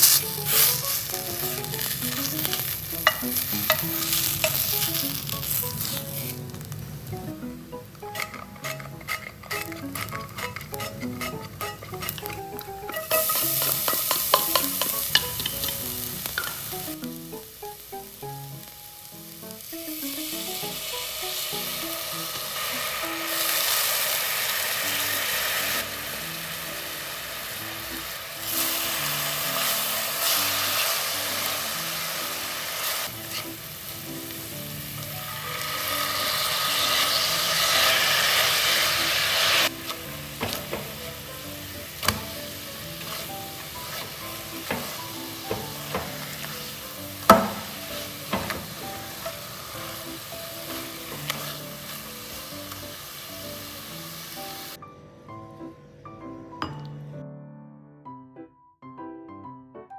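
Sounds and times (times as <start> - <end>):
garlic sizzling in hot oil: 0.0 - 54.8
spatula clicking and scraping: 0.1 - 6.5, 8.0 - 16.5, 33.2 - 33.6, 42.0 - 49.9, 50.6 - 52.1.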